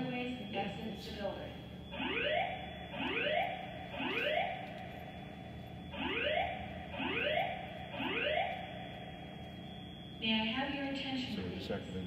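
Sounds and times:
rising whoop alarm tone: 1.8s - 10.3s.

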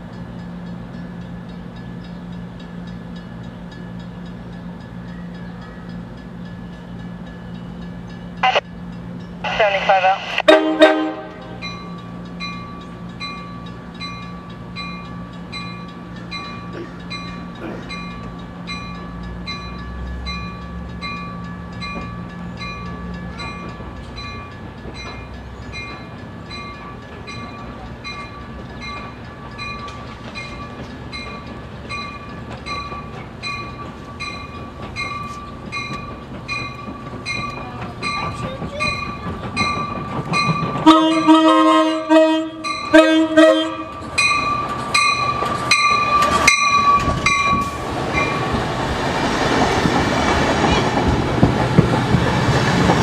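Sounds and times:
train running hum: 0.0s - 53.0s
train wheel noise: 0.0s - 53.0s
steady ringing bell: 44.1s - 48.4s.

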